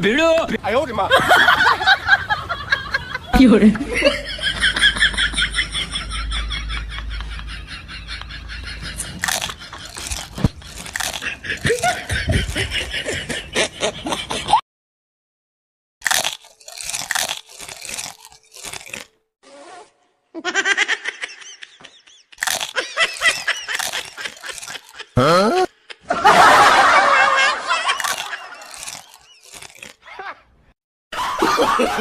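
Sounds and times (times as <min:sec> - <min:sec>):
crunchy snack being chewed: 0:09.0 - 0:12.9, 0:16.0 - 0:19.2, 0:22.4 - 0:25.2, 0:27.9 - 0:30.0
voice-like sounds: 0:25.2 - 0:25.7.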